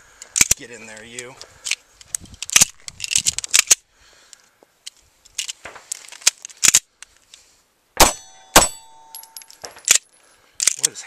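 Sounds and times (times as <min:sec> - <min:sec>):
metallic clicks of pistol handling: 0:00.2 - 0:07.4, 0:09.0 - 0:11.0
pistol shots: 0:08.0 - 0:09.3
steel target ringing: 0:08.0 - 0:09.6.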